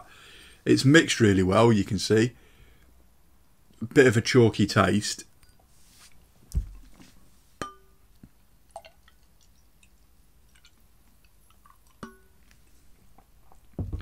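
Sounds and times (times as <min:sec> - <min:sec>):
wine glass clinking: 0:07.6 - 0:08.0, 0:12.0 - 0:12.4
low thump: 0:13.8 - 0:14.0.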